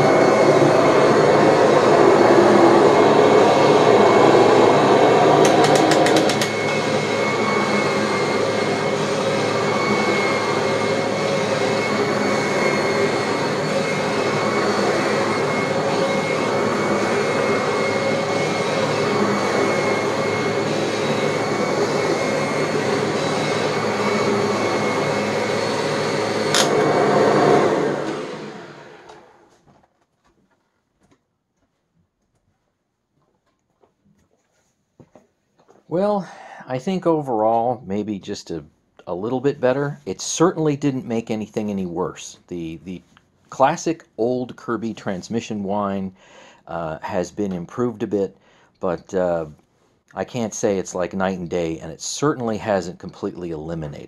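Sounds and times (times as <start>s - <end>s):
vacuum cleaner running with whine: 0.0s - 29.6s
rapid clicks: 5.4s - 6.6s.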